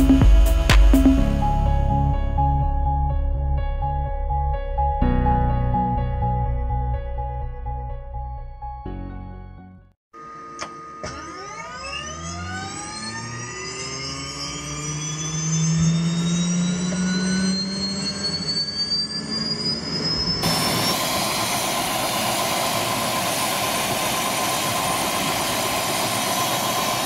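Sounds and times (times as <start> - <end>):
helicopter turbine whine: 10.3 - 27.0.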